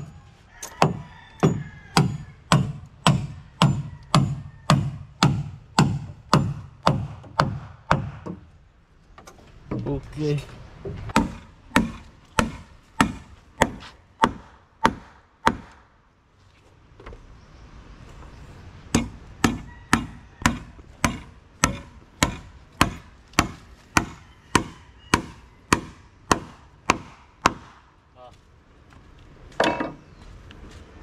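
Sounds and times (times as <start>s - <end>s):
hand tool striking timber: 0.6s - 8.5s, 10.9s - 15.8s, 18.9s - 27.8s.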